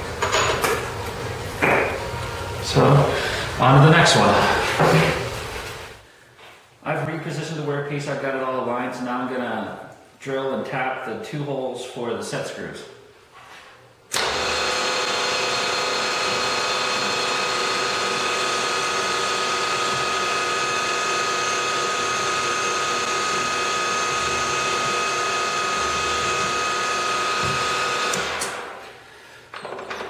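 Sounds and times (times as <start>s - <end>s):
milling machine spindle whining: 14.1s - 28.8s
drill bit drilling metal: 14.2s - 28.6s.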